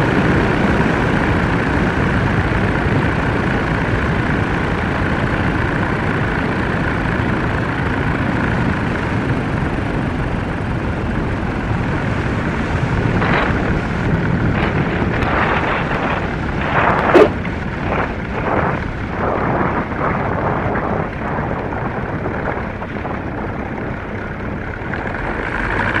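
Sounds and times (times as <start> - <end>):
aircraft engine and propeller: 0.0 - 26.0
wheels thumping on runway: 12.0 - 26.0
wind rushing: 12.7 - 24.7.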